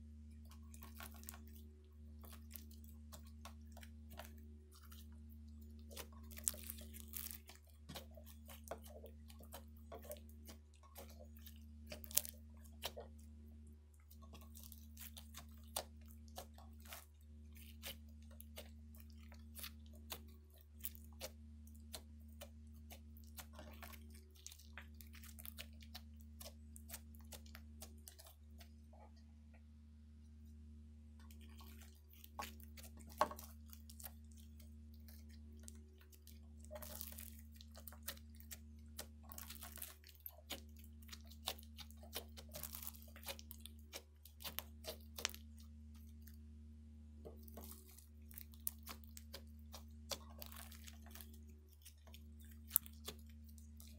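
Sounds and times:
slime crackling and squishing: 0.0 - 29.3, 31.2 - 53.9
low hum: 0.0 - 37.7.

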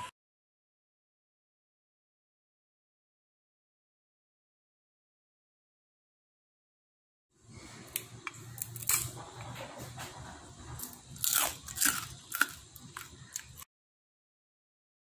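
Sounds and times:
dried fish crunching and snapping: 7.9 - 9.2, 10.8 - 13.6.

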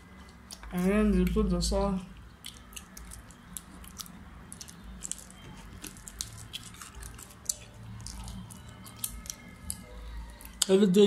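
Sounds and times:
wet chewing: 2.3 - 10.7.

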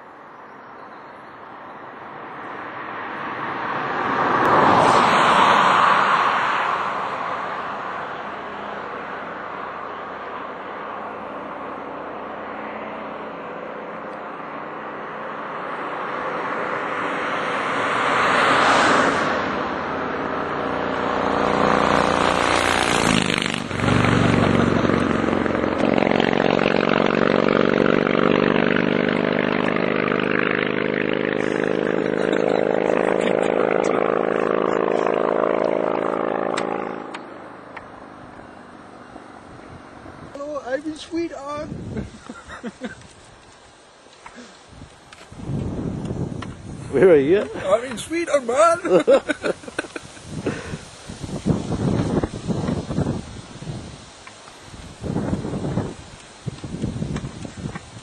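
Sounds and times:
tyre and road noise: 0.0 - 58.0
motorcycle engine passing: 2.7 - 40.4.

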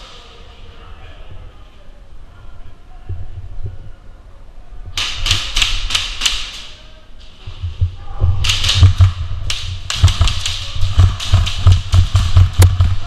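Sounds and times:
airsoft gunfire rattling: 5.0 - 6.8, 8.4 - 13.0
low thuds: 7.3 - 13.0.

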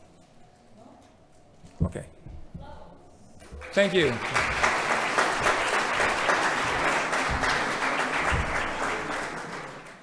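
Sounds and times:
audience applauding: 3.4 - 10.0.

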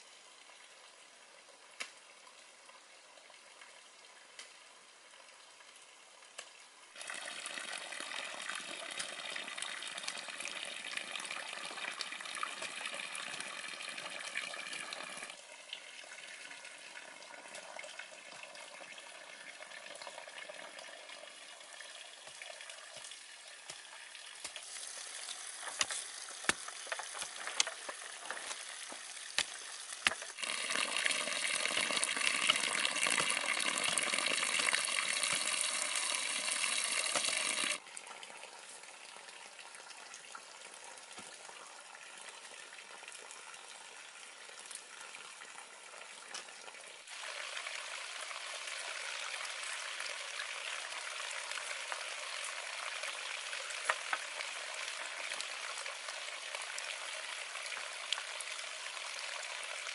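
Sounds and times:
running water splashing: 21.8 - 37.8.

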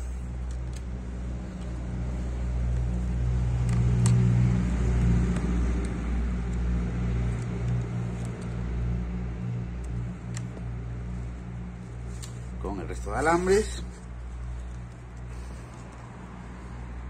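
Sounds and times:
low motor hum: 0.0 - 17.0
faint clicks of wire handling: 7.2 - 8.7, 9.8 - 16.2.

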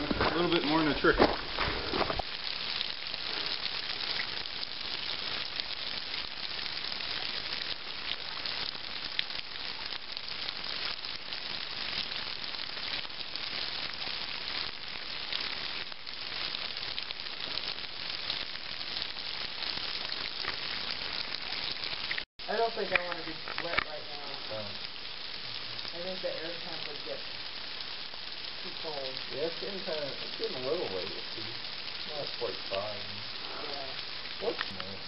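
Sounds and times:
water splashing on rocks: 0.0 - 24.4
waterfall hissing: 0.0 - 35.0.

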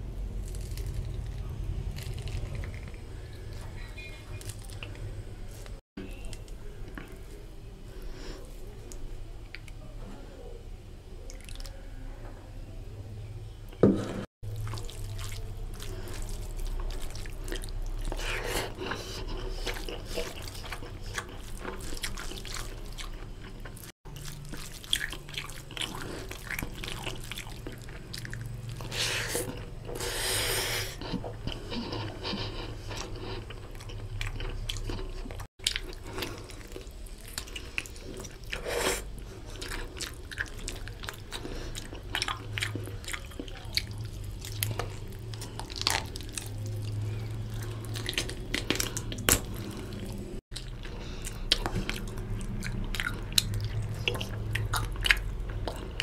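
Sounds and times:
hand mixing wet rice squishing: 14.4 - 30.2, 30.9 - 56.0.

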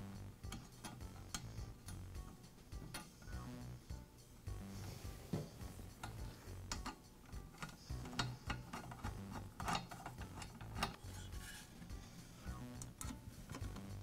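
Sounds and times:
screwdriver clicking on metal: 6.0 - 11.0.

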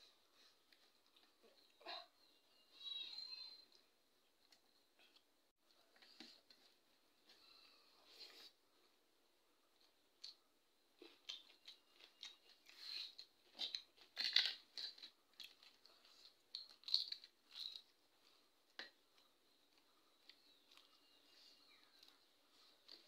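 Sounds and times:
crisp cracker crunching: 11.0 - 18.0.

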